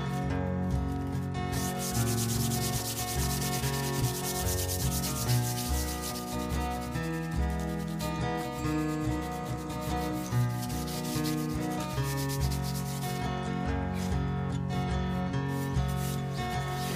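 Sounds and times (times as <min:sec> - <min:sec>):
sandpaper rubbing on wood: 0:01.5 - 0:13.3, 0:15.5 - 0:16.9.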